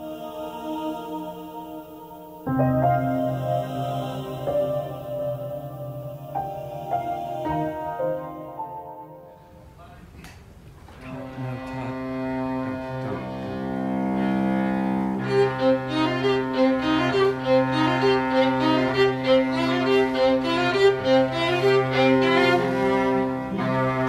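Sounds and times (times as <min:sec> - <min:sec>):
string trio playing: 0:11.0 - 0:24.0.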